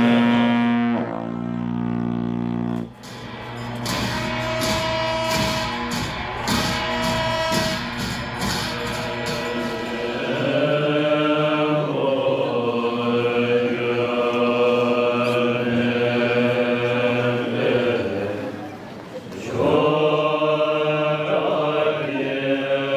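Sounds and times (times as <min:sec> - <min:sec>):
plucked-string music: 0:02.8 - 0:10.6
monks chanting in low voices: 0:08.4 - 0:22.9.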